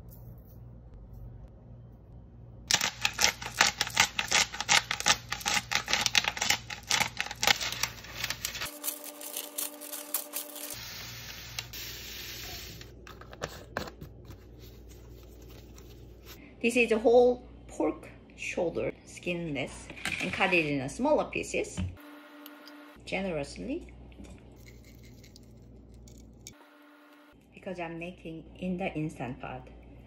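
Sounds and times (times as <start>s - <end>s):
spice sliding off paper hiss: 6.9s - 12.8s.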